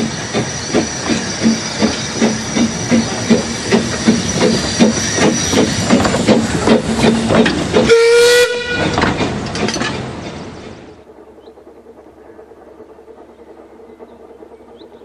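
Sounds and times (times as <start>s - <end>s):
steam locomotive exhaust beating: 0.0s - 15.0s
steam whistle blast: 7.9s - 8.9s.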